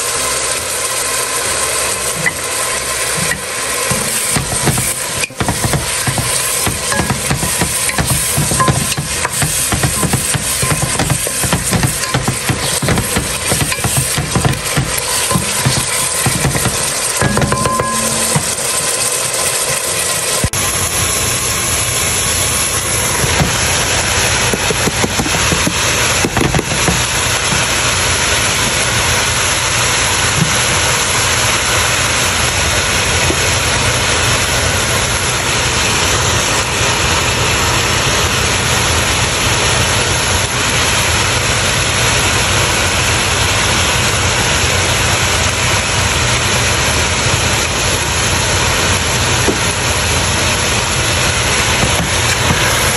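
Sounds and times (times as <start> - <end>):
hiss: 0.0 - 17.6
loud steady hum: 0.0 - 52.9.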